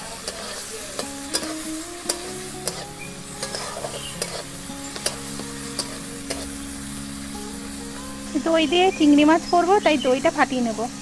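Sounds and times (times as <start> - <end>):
metal spatula scraping a pan: 0.0 - 6.7
prawns sizzling in hot oil: 0.0 - 11.0.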